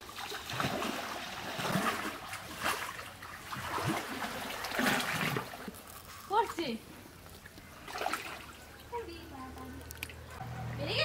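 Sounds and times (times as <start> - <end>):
loud water splashes: 0.0 - 5.7, 7.8 - 8.8
water splashing around waders: 0.0 - 9.0.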